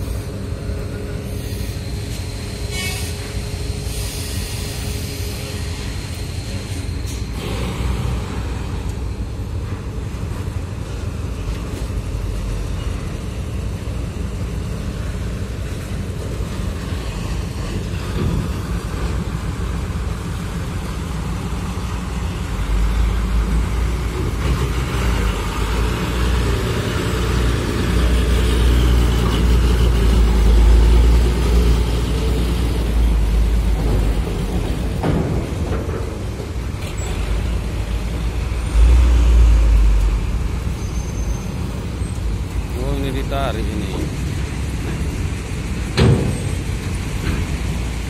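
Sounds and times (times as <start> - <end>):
vehicles driving off ramp: 15.0 - 48.0
truck engine passing close: 37.0 - 44.0.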